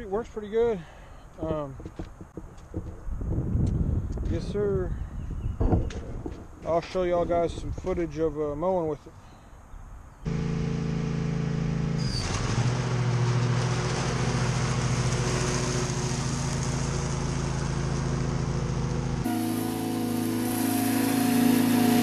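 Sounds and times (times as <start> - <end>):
riding mower engine running: 10.3 - 22.0
hiss: 19.3 - 22.0.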